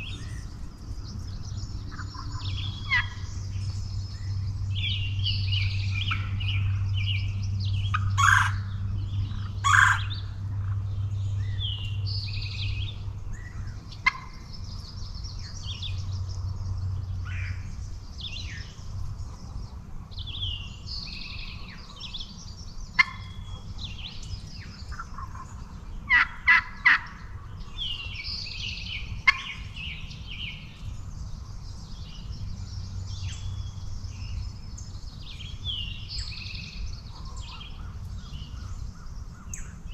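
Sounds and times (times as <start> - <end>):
songbirds chirping: 0.0 - 39.9
turkeys gobbling: 1.9 - 3.2, 7.9 - 8.6, 9.3 - 10.8, 14.0 - 14.3, 23.0 - 23.3, 24.9 - 27.2, 29.2 - 29.6.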